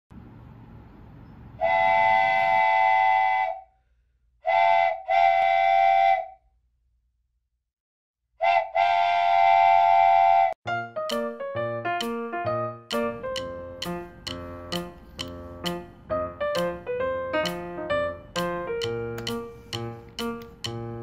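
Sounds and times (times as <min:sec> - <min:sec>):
multi-tone train whistle blasts: 0:01.6 - 0:03.7, 0:04.4 - 0:06.4, 0:08.4 - 0:10.6.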